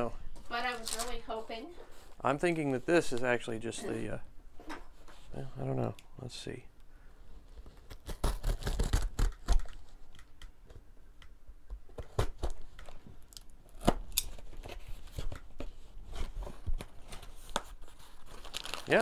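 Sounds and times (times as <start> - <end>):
plastic wrap crinkling: 0.5 - 1.6, 16.7 - 19.0
cardboard box being cut open: 7.8 - 9.5.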